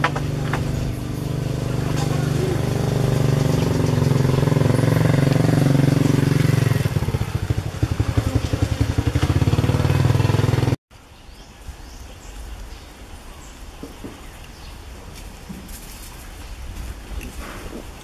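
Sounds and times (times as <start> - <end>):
engine humming and throbbing: 0.0 - 10.8.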